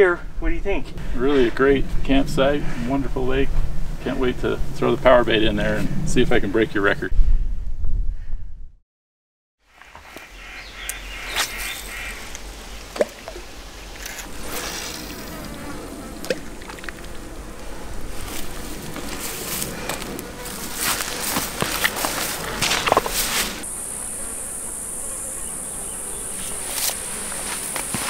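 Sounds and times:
steady outdoor hiss: 0.0 - 7.1, 9.6 - 28.0
low rumble: 0.1 - 8.8
insects buzzing: 9.6 - 28.0.

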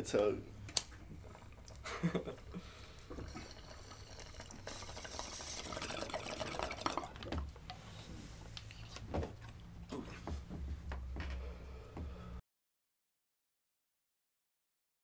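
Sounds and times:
water bubbling in bong: 2.9 - 7.4.

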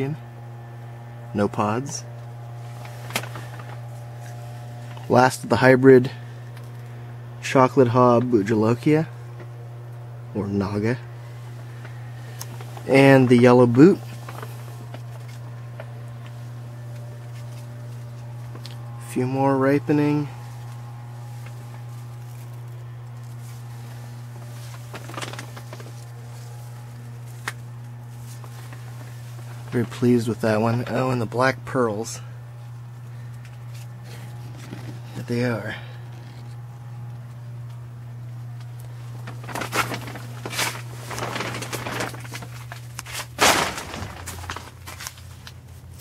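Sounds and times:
steady low hum: 0.0 - 46.0
rustling plant leaves: 2.5 - 4.9, 11.2 - 16.6, 20.2 - 30.0, 38.9 - 46.0
rustling and scuffing: 39.3 - 46.0.

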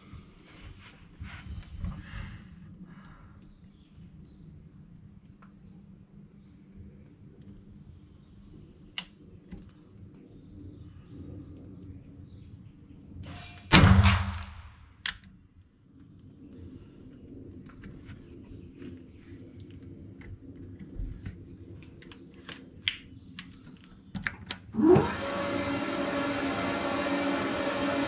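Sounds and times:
rifle shot echoing: 13.7 - 14.9.

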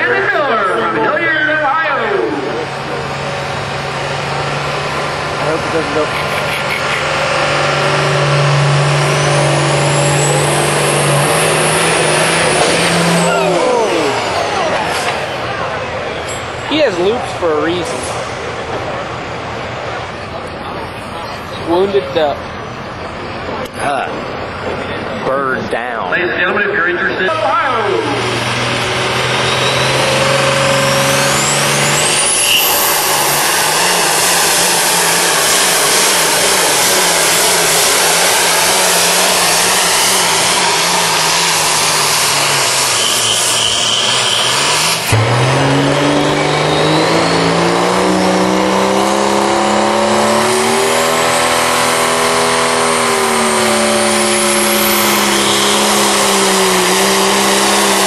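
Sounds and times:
diesel truck engine at full throttle: 0.0 - 58.0
high rising whistle: 8.0 - 14.8, 29.4 - 48.5.

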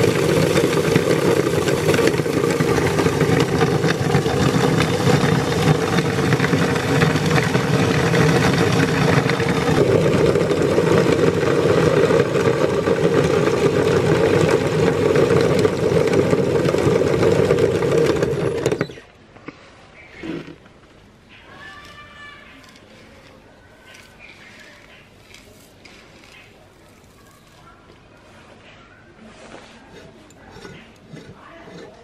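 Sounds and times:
hard pieces crackling in grinder: 0.0 - 19.1, 21.5 - 28.0
meat grinder motor hum: 0.0 - 19.1, 22.6 - 27.7.

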